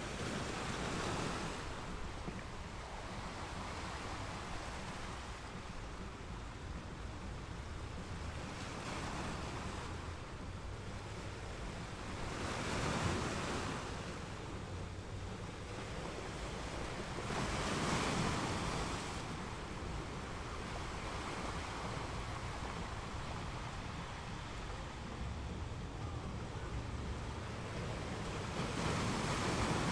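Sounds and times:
surf washing over rocks: 0:00.0 - 0:29.9.

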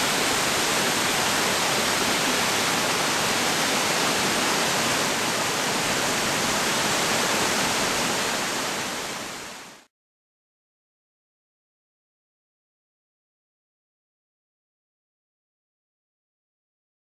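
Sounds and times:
waterfall rushing: 0:00.0 - 0:09.9.

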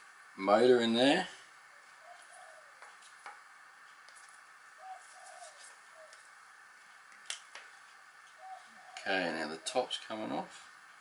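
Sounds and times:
bird cooing: 0:01.8 - 0:03.0, 0:04.8 - 0:06.3, 0:08.3 - 0:09.8.

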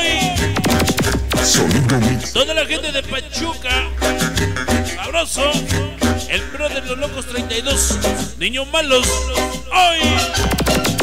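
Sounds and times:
dance music: 0:00.0 - 0:02.4, 0:03.1 - 0:08.2, 0:09.0 - 0:11.0
echoing dj effect: 0:00.0 - 0:09.2, 0:09.8 - 0:11.0.

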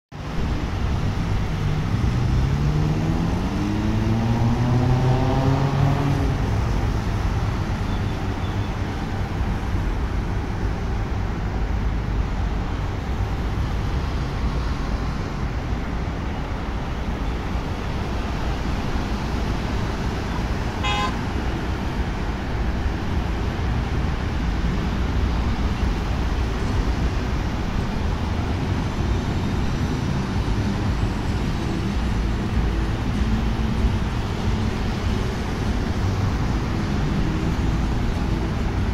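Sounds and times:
road traffic hum: 0:00.1 - 0:38.9
vehicle engine accelerating: 0:00.7 - 0:08.0
short high horn toot: 0:20.8 - 0:21.2.

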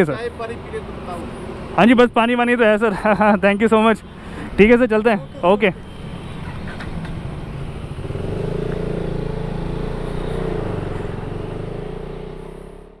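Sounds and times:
motorcycle engine pulling away: 0:07.8 - 0:13.0.

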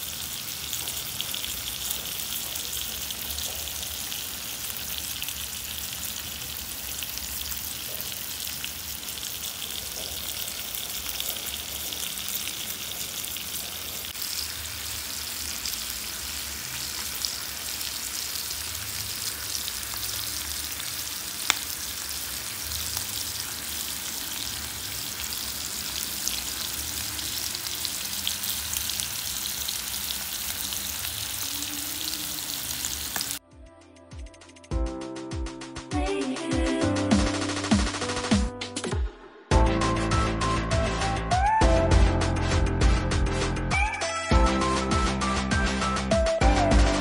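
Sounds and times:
chicken sizzling in oil: 0:00.0 - 0:33.4
sharp pop of hot oil: 0:21.4 - 0:21.7.

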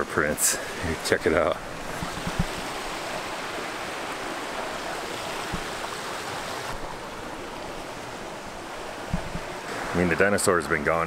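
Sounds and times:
creek rushing: 0:00.0 - 0:11.0
camera bumps: 0:02.0 - 0:02.6.

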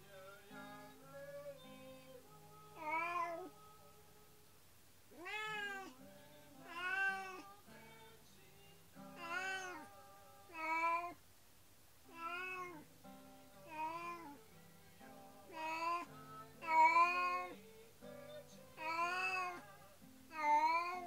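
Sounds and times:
cat meowing: 0:02.8 - 0:03.5, 0:05.1 - 0:06.0, 0:06.6 - 0:07.5, 0:09.1 - 0:09.9, 0:10.5 - 0:11.2, 0:12.1 - 0:12.8, 0:13.7 - 0:14.4, 0:15.5 - 0:17.6, 0:18.8 - 0:19.7, 0:20.3 - 0:21.0.

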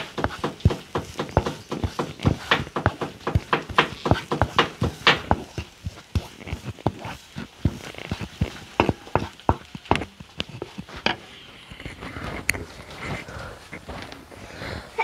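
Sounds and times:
onions sauteing: 0:00.0 - 0:11.5
spatula scraping and knocking pan: 0:00.0 - 0:12.5.

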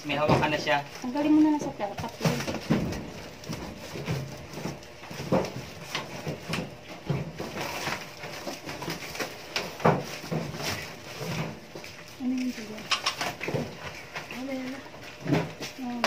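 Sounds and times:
boxed oven knocking: 0:00.0 - 0:11.6
cardboard rustling and scraping: 0:00.1 - 0:16.0.

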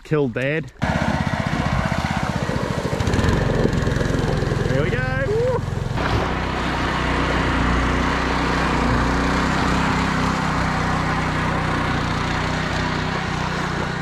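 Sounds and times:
small petrol engine running: 0:00.8 - 0:14.0.

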